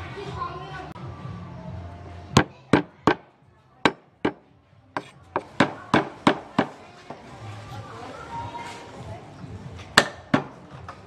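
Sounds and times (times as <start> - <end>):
cleaver chopping on wooden board: 3.9 - 4.4.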